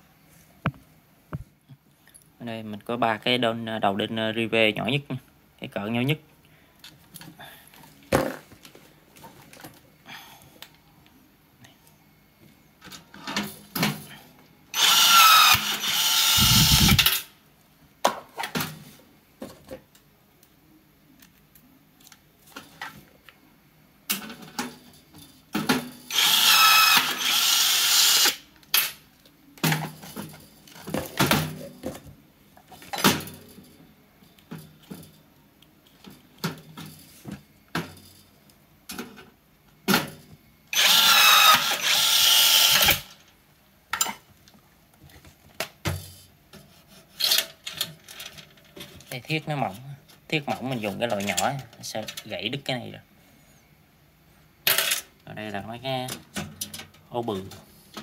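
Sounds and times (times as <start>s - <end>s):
rivet gun motor running: 14.8s - 17.2s, 26.1s - 28.4s, 40.7s - 43.1s.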